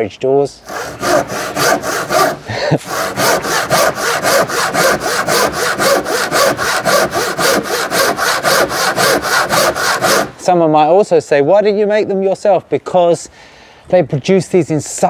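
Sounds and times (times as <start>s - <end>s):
handsaw cutting wood: 0.6s - 10.4s.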